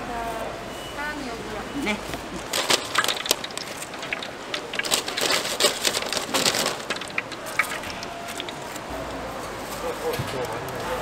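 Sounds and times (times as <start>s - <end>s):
oil crackling and popping: 2.4s - 8.9s.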